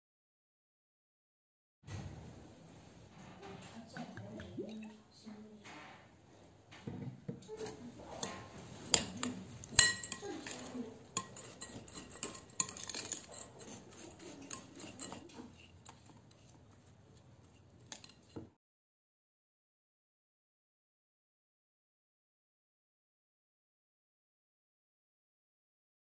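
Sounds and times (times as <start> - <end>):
metal spoon scraping in glass bowl: 7.6 - 16.6, 17.5 - 18.4.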